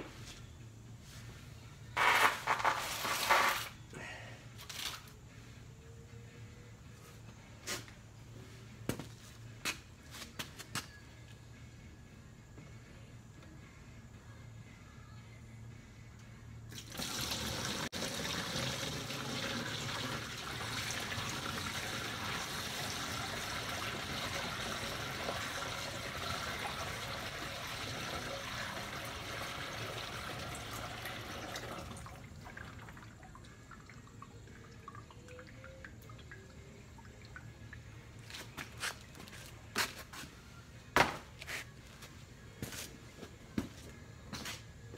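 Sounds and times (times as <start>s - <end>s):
oil pouring through funnel: 16.7s - 38.2s
oil trickling and dripping: 16.7s - 39.1s.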